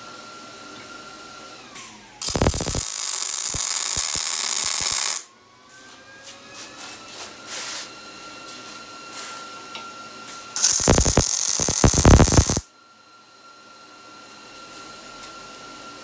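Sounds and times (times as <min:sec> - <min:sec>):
welder arc buzzing: 0:02.2 - 0:05.3, 0:10.6 - 0:12.7.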